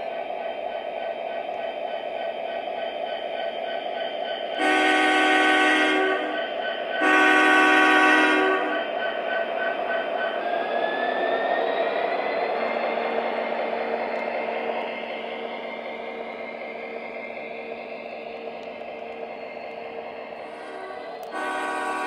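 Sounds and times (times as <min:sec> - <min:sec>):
model train horn blasts: 0:04.6 - 0:06.4, 0:07.0 - 0:08.8, 0:20.5 - 0:22.0.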